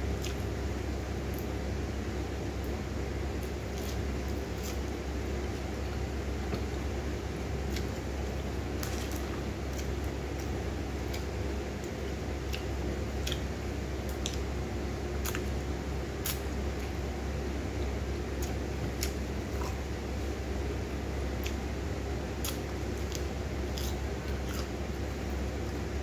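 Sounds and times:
steady low hum: 0:00.0 - 0:26.0
person chewing: 0:08.8 - 0:13.5, 0:22.4 - 0:25.0.

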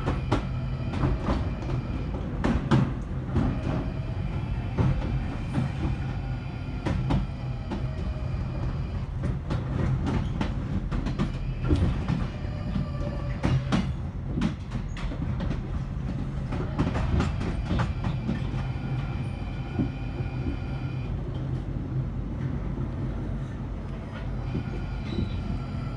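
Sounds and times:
train rumble: 0:00.0 - 0:25.9.

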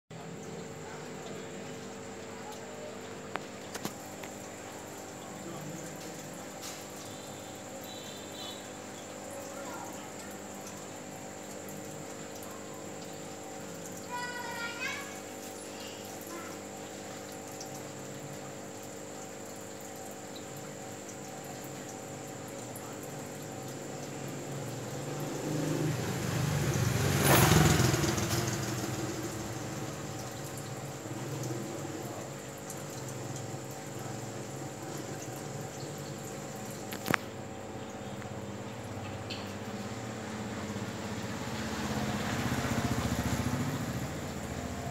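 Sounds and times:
aquarium aeration hum and hiss: 0:00.1 - 0:44.9
air stones bubbling: 0:00.3 - 0:14.0.

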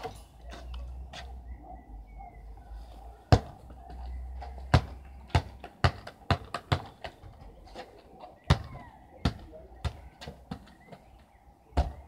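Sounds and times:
football thudding on concrete: 0:03.3 - 0:03.6, 0:04.7 - 0:07.2, 0:08.5 - 0:10.7, 0:11.8 - 0:12.0.

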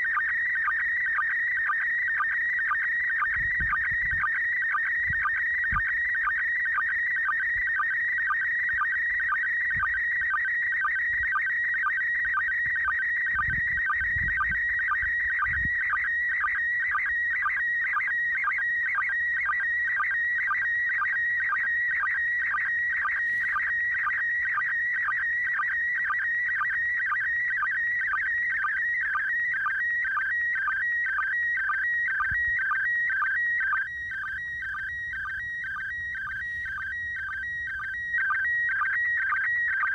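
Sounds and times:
shrill warbling radio tone: 0:31.7 - 0:39.9.

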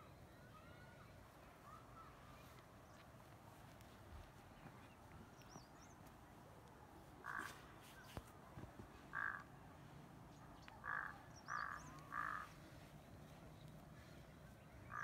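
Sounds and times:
harsh animal calls: 0:10.8 - 0:12.6.

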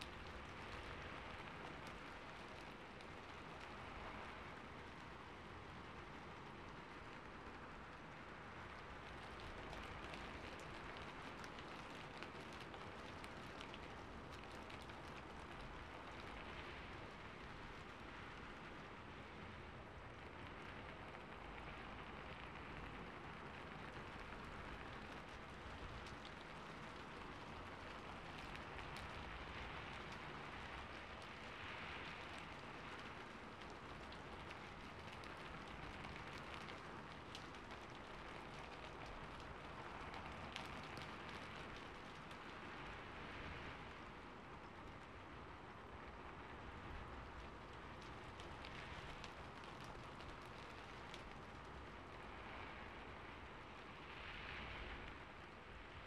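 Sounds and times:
rain falling on a rooftop: 0:00.0 - 0:56.0
small drop ticks: 0:09.1 - 0:16.6, 0:24.2 - 0:42.9, 0:47.3 - 0:52.3.

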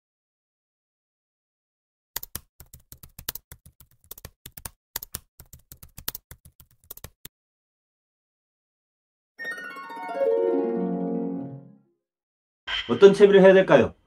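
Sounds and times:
keyboard typing clicks: 0:02.2 - 0:07.3.

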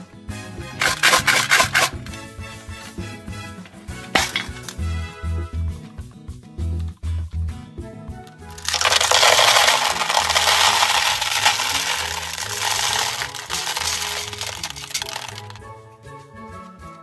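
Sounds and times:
candies clattering into plastic tub: 0:00.8 - 0:02.2, 0:04.1 - 0:04.8, 0:08.5 - 0:15.6.

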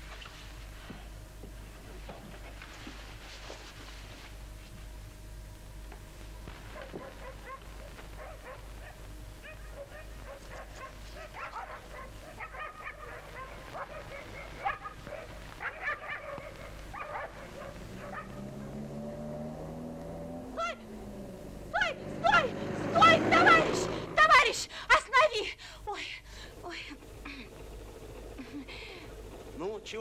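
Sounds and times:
low film hum: 0:00.0 - 0:30.0
dogs barking and yelping: 0:06.7 - 0:18.7.

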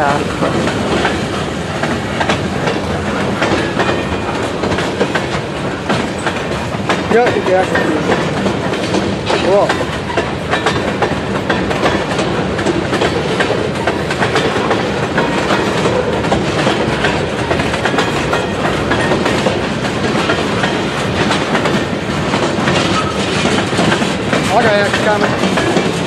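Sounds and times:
freight train rumbling: 0:00.0 - 0:26.0
wheels clicking over rail joints: 0:00.0 - 0:26.0.

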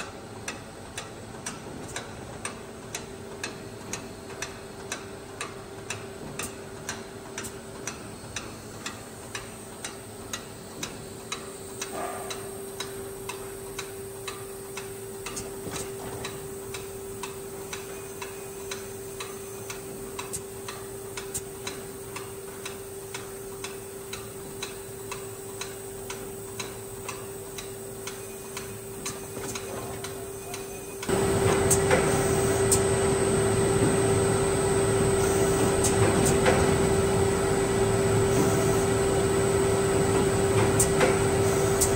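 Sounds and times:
mechanical ticks: 0:00.0 - 0:32.1
machinery humming: 0:09.6 - 0:41.9.

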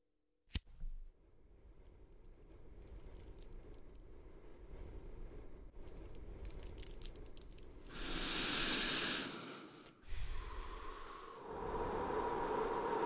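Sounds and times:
hissing breath in: 0:07.9 - 0:13.0
smoke blown out breath: 0:07.9 - 0:13.0.

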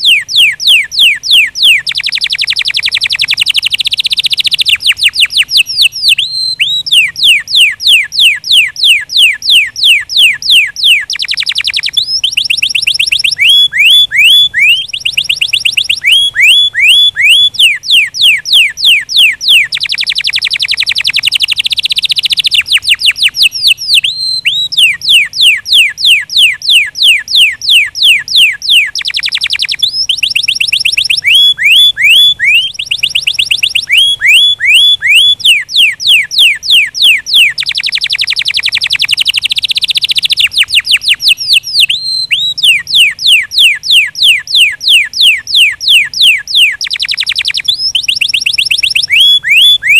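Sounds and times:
canary singing: 0:00.0 - 0:49.9.

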